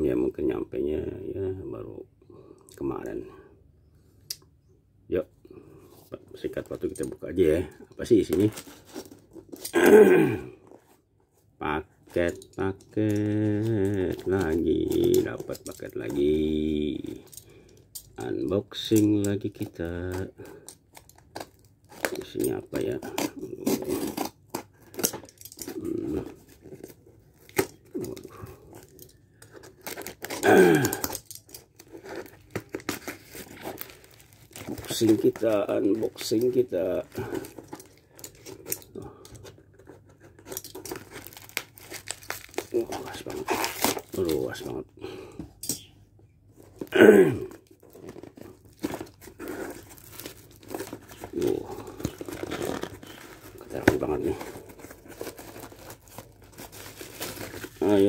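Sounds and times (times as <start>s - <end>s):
paper wrapping tearing and crinkling: 21.0s - 39.0s, 40.5s - 44.8s, 46.7s - 58.0s.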